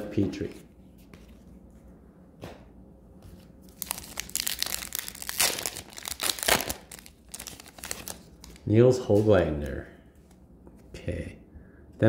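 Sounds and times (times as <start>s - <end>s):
foil wrapper tearing and crinkling: 3.7s - 8.7s.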